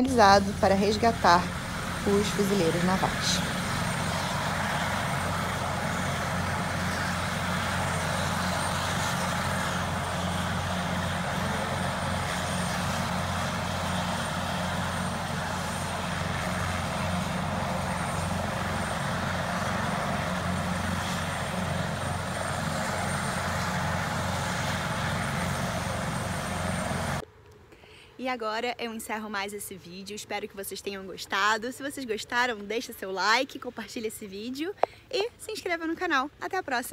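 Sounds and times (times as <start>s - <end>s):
helicopter idling: 0.0s - 27.2s.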